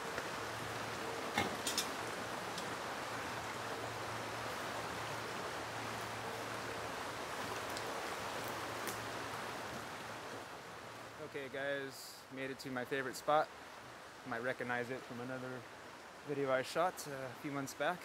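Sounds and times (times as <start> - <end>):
river water rushing: 0.0 - 11.3.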